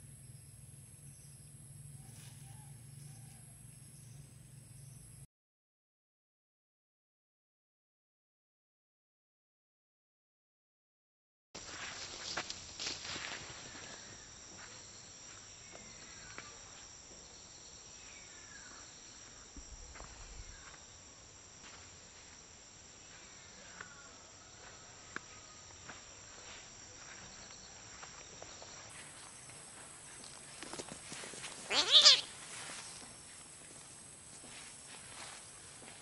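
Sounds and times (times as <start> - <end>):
insects droning: 0.0 - 5.3, 11.6 - 36.0
short chirping calls: 31.6 - 32.3.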